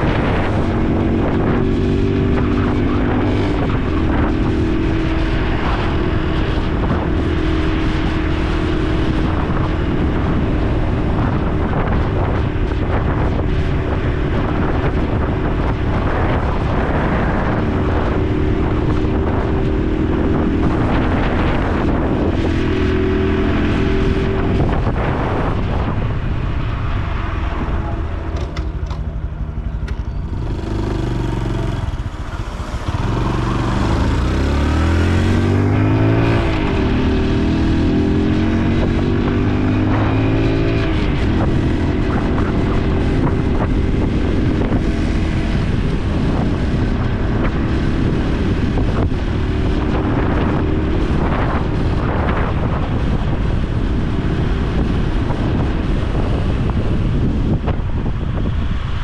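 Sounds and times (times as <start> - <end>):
motorcycle engine revving: 0.0 - 26.3, 27.5 - 58.5.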